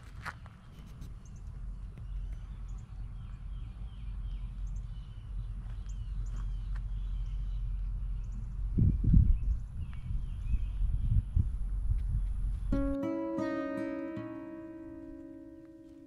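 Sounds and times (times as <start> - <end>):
steady low rumble: 0.0 - 12.8
songbirds chirping: 0.1 - 16.0.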